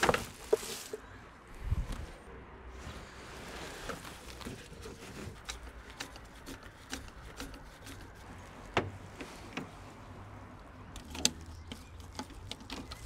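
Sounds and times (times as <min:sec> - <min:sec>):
screwdriver and car parts clicking: 0:04.8 - 0:09.7, 0:10.8 - 0:13.0.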